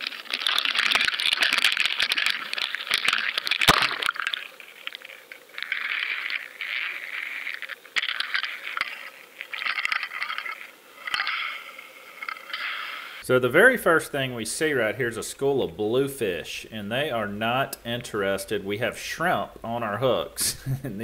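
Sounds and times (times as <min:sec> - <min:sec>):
sharp clinks and clicks: 0:00.0 - 0:13.2.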